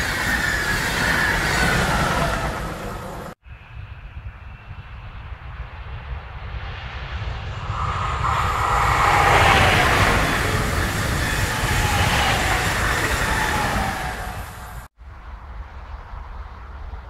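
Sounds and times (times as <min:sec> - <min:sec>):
train rushing past: 0:00.0 - 0:03.4, 0:06.6 - 0:14.9
train whine falling in pitch: 0:07.6 - 0:14.9.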